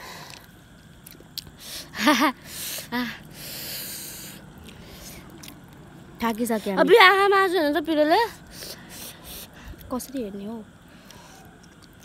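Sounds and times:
soft breathy exhales: 10.9s - 11.6s.

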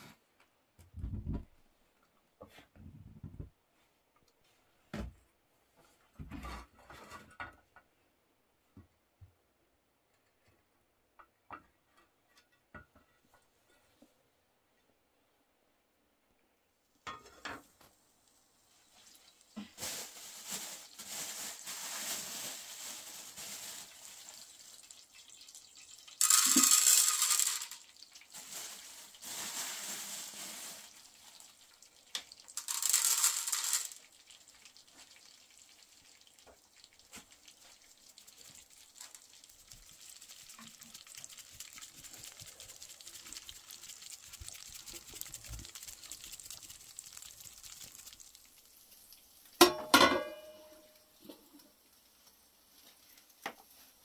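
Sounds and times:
oil sizzling in a frying pan: 16.8s - 54.0s
metal tray clanking on pan: 49.6s - 50.9s.

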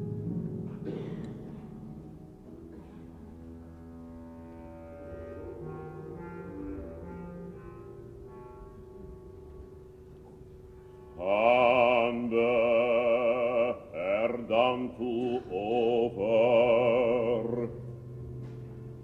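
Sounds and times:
operatic voice singing: 11.2s - 17.9s.

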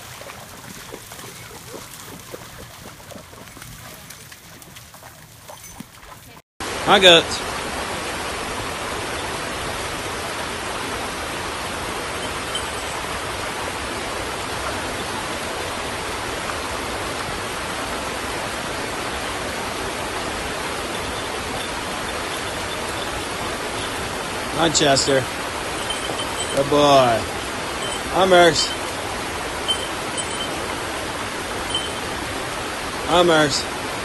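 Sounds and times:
creek rushing over rocks: 0.0s - 34.0s.

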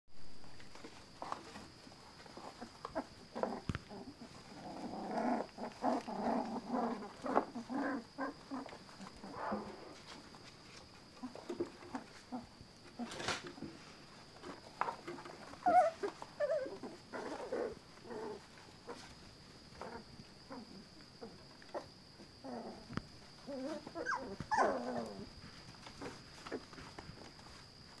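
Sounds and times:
puppies yipping and whimpering: 14.8s - 19.1s, 23.3s - 25.3s.

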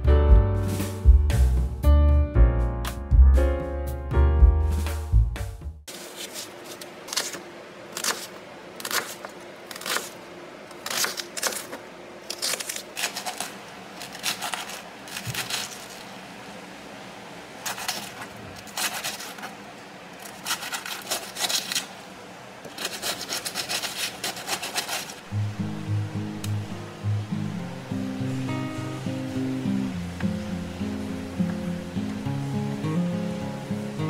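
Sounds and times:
knife cutting vegetables on board: 5.9s - 7.4s, 8.0s - 16.0s, 17.7s - 19.6s, 20.2s - 21.9s, 22.6s - 25.2s.

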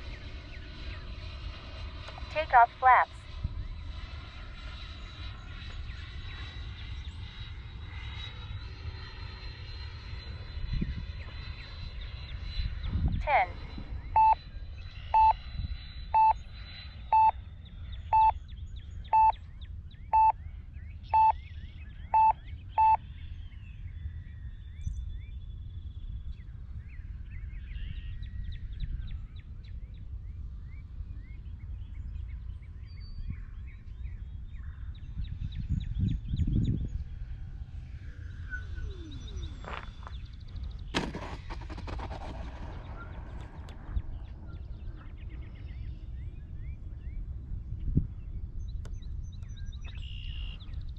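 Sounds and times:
rumble: 0.0s - 50.9s
wind noise: 10.5s - 11.6s, 12.4s - 16.5s, 33.2s - 50.0s
electronic beeps: 14.0s - 14.4s, 15.1s - 15.5s, 16.2s - 16.5s, 17.1s - 17.4s, 18.1s - 18.4s, 19.1s - 19.4s, 20.2s - 20.4s, 21.2s - 21.4s, 22.2s - 23.0s
faint bird chirps: 38.1s - 40.8s, 48.6s - 50.9s
model jet touching down: 40.9s - 45.1s.

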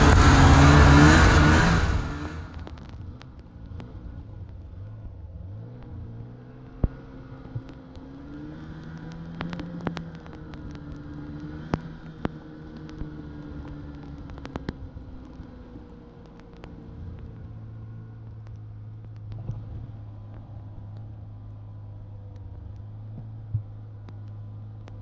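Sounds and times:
snowmobile engine running: 0.0s - 15.6s.

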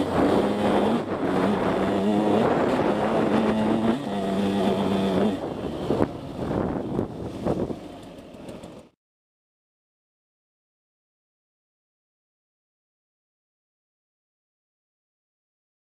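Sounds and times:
dirt bike engine revving: 0.0s - 8.9s.

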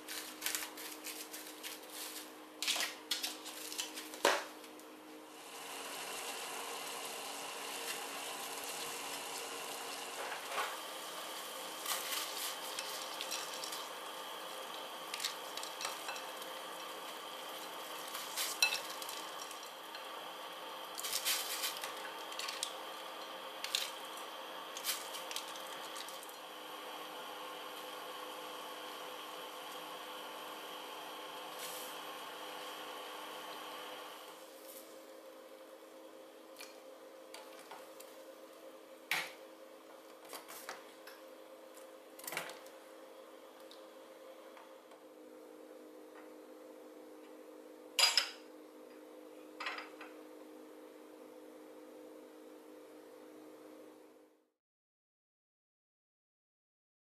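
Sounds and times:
faint steady hum: 0.0s - 54.5s
water boiling in a saucepan: 5.3s - 35.4s.

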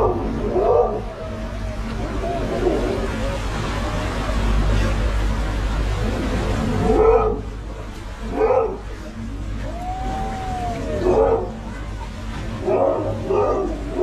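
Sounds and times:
boat engine droning: 0.0s - 14.0s
water rushing past hull: 0.0s - 14.0s.

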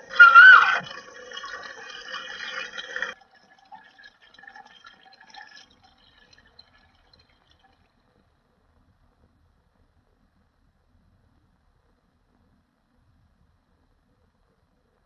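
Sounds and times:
water dripping and trickling: 0.0s - 8.1s.

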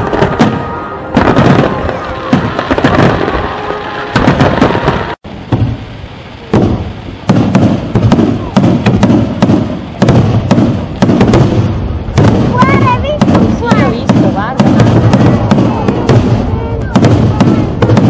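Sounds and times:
fireworks bursts and bangs: 0.0s - 18.0s.

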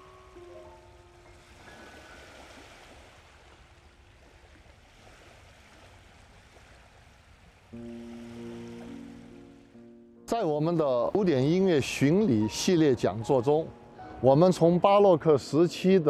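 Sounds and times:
music: 0.0s - 2.1s, 7.8s - 16.0s
water lapping at a shore: 0.0s - 16.0s.

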